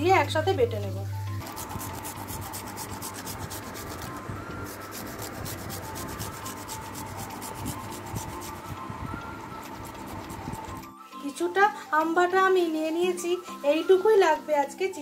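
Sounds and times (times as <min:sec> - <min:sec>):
mango rasping on metal grater: 0:01.4 - 0:08.8, 0:09.5 - 0:10.8.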